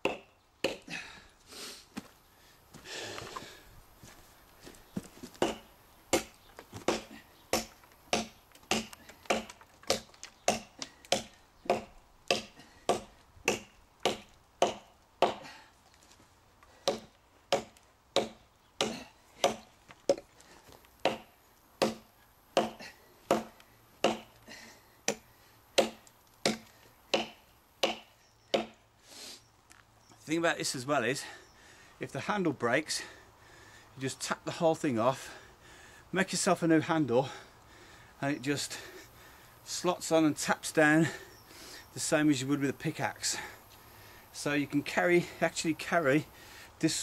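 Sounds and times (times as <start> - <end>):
tomahawk chopping into log: 5.4 - 15.4, 16.8 - 20.2, 21.0 - 24.3, 25.1 - 28.8.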